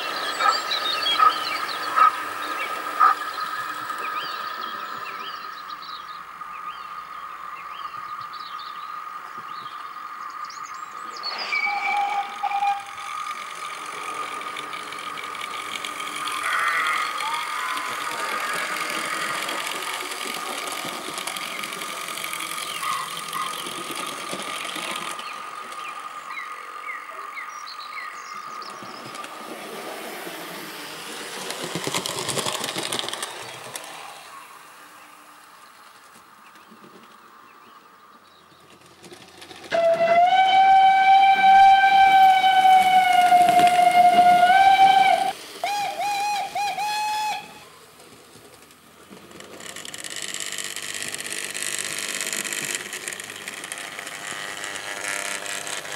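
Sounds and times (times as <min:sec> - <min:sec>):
model train motor whine: 0:00.0 - 0:06.0, 0:11.1 - 0:36.1, 0:38.7 - 0:55.9
wheels rattling over track: 0:00.0 - 0:06.8, 0:10.6 - 0:55.9.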